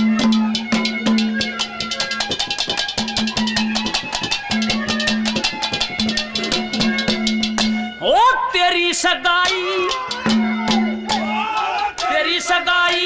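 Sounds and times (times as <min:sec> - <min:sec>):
fast dense drumming: 0:00.0 - 0:07.9.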